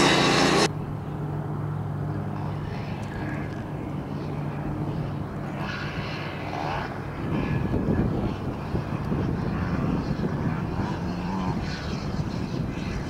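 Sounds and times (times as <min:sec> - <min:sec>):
distant dirt bike engine: 0:00.0 - 0:13.0.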